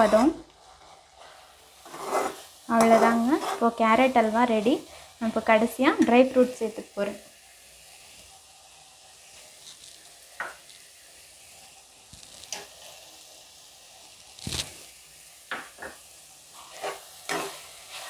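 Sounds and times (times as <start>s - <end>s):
steel spatula scraping a pan: 0.0s - 5.0s, 16.5s - 18.0s
halwa sizzling in a pan: 0.0s - 18.0s.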